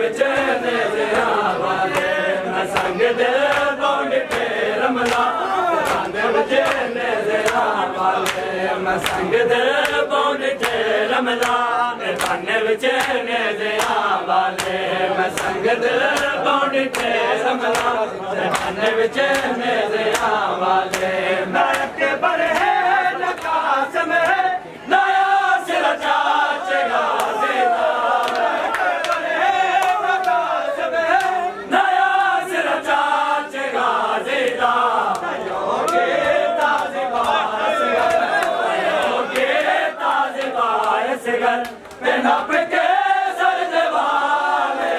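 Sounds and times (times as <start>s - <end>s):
men chanting: 0.0s - 44.9s
hands slapping chests: 1.9s - 10.0s, 12.2s - 12.4s, 13.8s - 22.7s, 28.2s - 30.4s, 34.4s - 37.4s.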